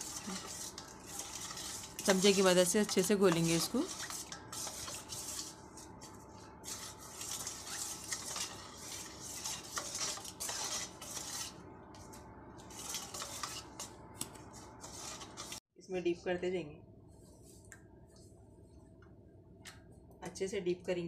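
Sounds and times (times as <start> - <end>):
metal spoon stirring batter in bowl: 0.0 - 15.6.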